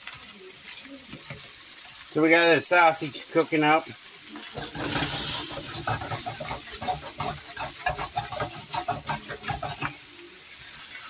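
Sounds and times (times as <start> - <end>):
sausage sizzling in a wok: 0.0 - 11.0
wok knocking on stove grate: 4.6 - 10.0.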